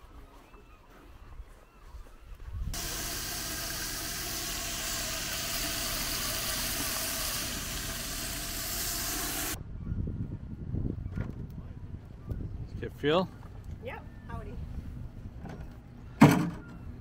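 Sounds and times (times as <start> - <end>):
water from hose rushing: 2.8 - 9.6.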